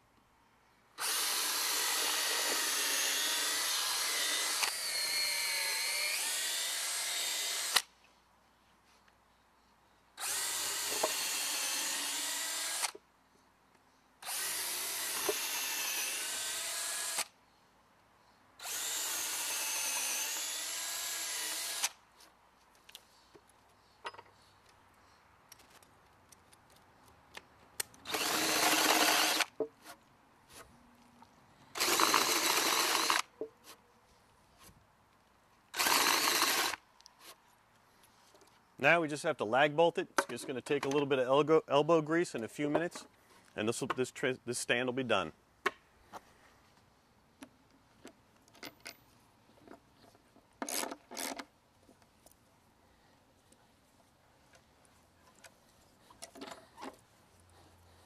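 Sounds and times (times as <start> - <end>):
cordless drill boring into wood: 1.0 - 7.9, 10.2 - 13.0, 14.2 - 17.3, 18.6 - 22.0, 28.0 - 29.5, 31.7 - 33.3, 35.7 - 36.8.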